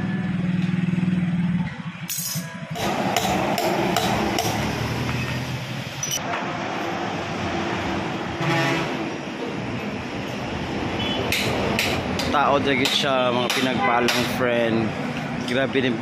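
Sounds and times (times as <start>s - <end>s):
sharp metal taps: 11.3s - 14.4s.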